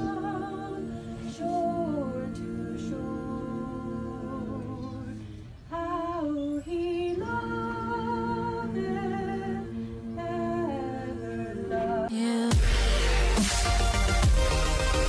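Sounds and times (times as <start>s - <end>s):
group singing a cappella: 0.0s - 15.0s.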